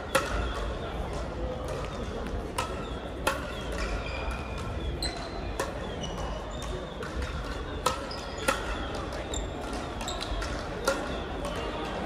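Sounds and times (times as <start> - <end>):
sports hall din: 0.0 - 12.0
shoes squeaking on court: 2.8 - 7.0.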